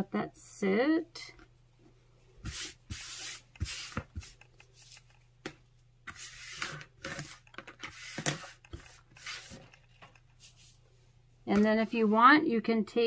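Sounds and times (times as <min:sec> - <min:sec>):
rustles and scrapes of craft tools: 0:01.4 - 0:05.3, 0:06.0 - 0:11.0.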